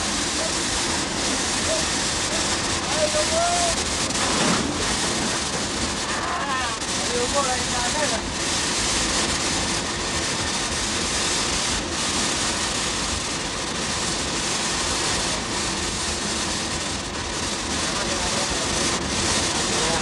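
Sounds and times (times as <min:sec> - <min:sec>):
steam hissing: 0:00.0 - 0:20.0
steam locomotive running noise: 0:00.0 - 0:20.0.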